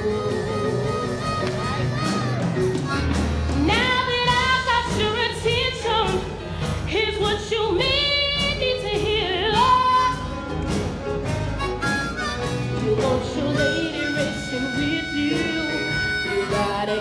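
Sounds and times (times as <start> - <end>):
live band with bass and drums: 0.0 - 17.0
woman singing: 3.5 - 10.4, 12.7 - 17.0.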